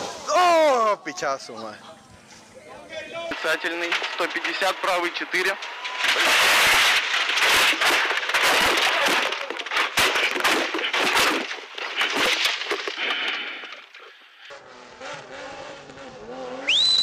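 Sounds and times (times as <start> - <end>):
car crash impacts and smashing: 3.3 - 14.2.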